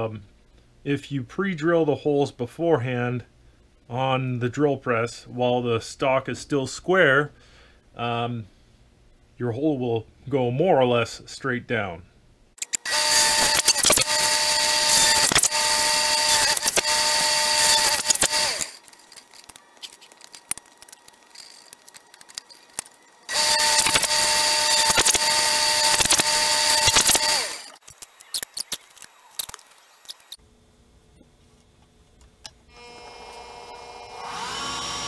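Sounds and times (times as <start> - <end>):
drill press boring into wood: 12.7 - 19.6, 20.7 - 28.8, 32.7 - 35.0.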